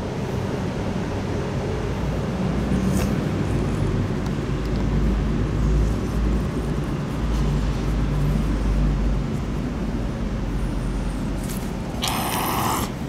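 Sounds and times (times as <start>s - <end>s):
cat purring: 12.0s - 13.0s.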